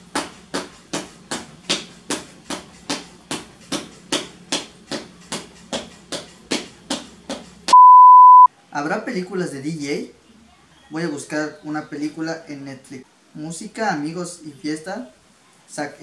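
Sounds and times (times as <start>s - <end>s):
high electronic beep: 7.7s - 8.5s.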